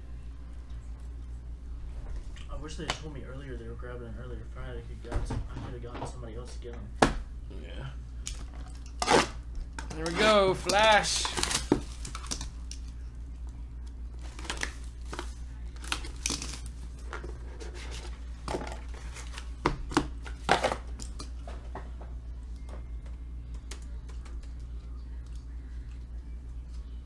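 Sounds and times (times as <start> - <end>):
steady low hum: 0.0 - 27.0
wrapper crinkling and tearing: 10.1 - 12.8.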